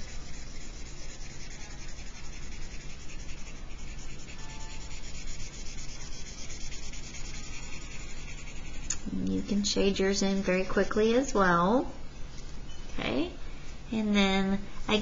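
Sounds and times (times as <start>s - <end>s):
marker scribbling on paper: 0.0s - 11.3s.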